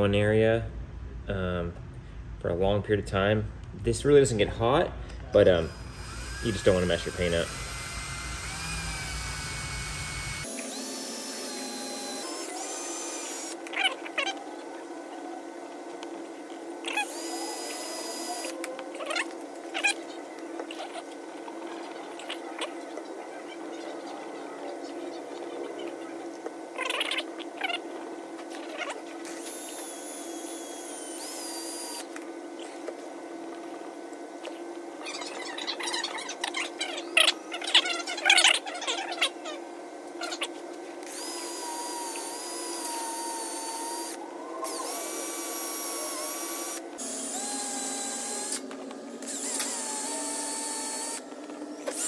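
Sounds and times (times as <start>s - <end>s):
steady low hum: 0.0s - 52.0s
drill motor whine: 5.4s - 14.4s, 16.8s - 18.6s, 29.3s - 32.1s, 41.0s - 52.0s.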